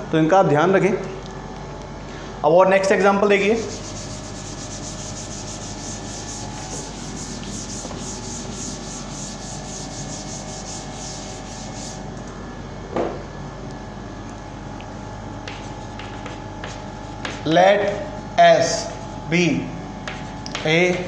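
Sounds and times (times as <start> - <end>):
duster wiping blackboard: 3.5 - 12.0.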